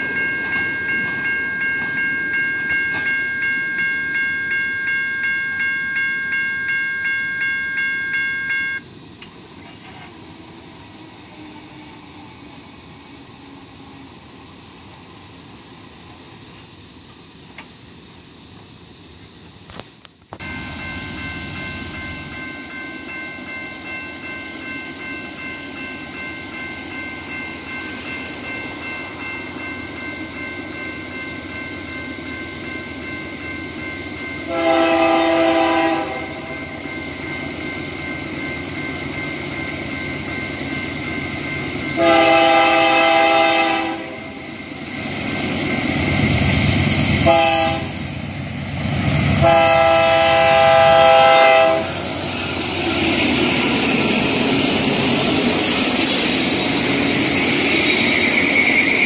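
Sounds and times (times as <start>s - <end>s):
crossing bell ringing: 0.0s - 8.9s, 20.4s - 59.0s
locomotive air horn blasts: 34.5s - 36.5s, 42.0s - 44.3s, 47.2s - 48.0s, 49.4s - 52.0s.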